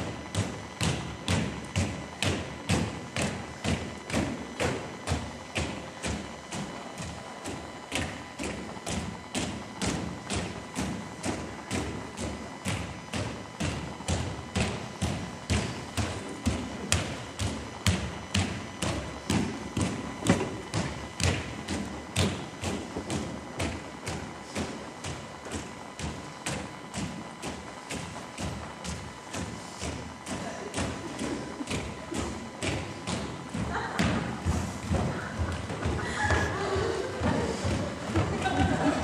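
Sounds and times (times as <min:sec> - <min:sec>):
feet stepping on dance floor: 0:00.0 - 0:39.0.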